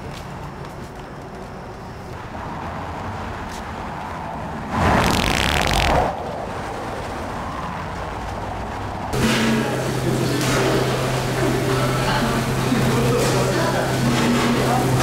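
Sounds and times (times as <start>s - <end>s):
street traffic noise: 0.0s - 15.0s
sudden loud noise: 4.7s - 7.6s.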